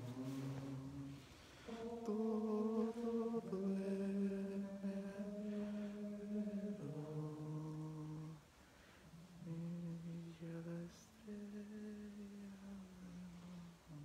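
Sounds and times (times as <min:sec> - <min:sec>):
person singing slow melody: 0:00.0 - 0:14.0.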